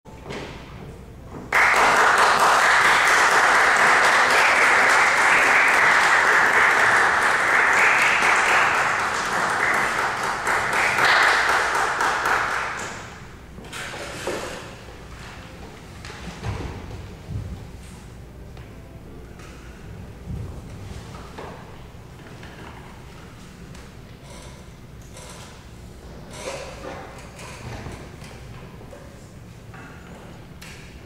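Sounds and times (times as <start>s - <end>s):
audience applauding: 1.5s - 13.1s.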